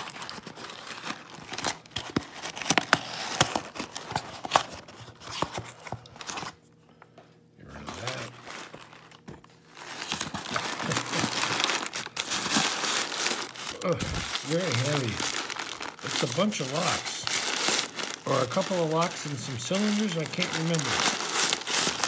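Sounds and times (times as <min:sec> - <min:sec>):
tape and cardboard ripping: 0:00.0 - 0:05.6
packing paper rustling: 0:00.0 - 0:06.6, 0:07.7 - 0:22.0.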